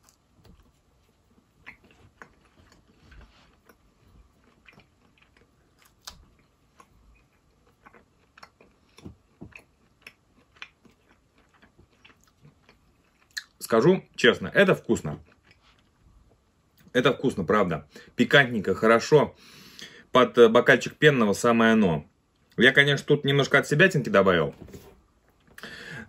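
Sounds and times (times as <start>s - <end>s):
chewing jerky crunches: 0.0s - 13.7s.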